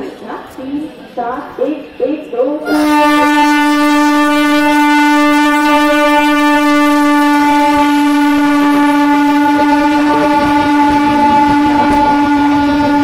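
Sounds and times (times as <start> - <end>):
train horn long blast: 2.6 - 13.0.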